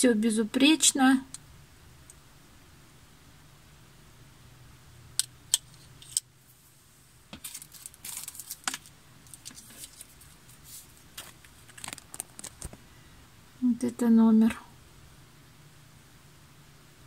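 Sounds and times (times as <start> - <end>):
plastic packet crinkling: 7.4 - 12.8.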